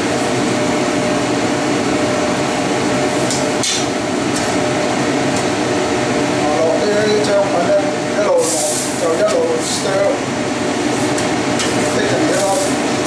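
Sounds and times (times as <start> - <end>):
food sizzling in a wok: 8.4 - 9.7, 10.6 - 13.0.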